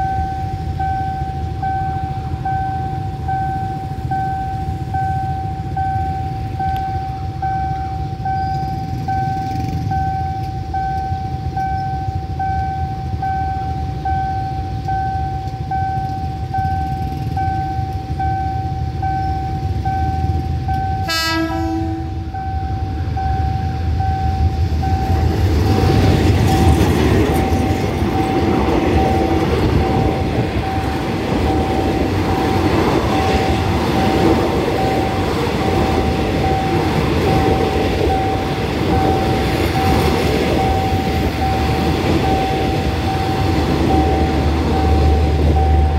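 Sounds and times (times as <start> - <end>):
level crossing signal beeping: 0.0 - 45.9
train rumble and wheel clatter: 0.0 - 45.9
locomotive horn: 21.0 - 22.4.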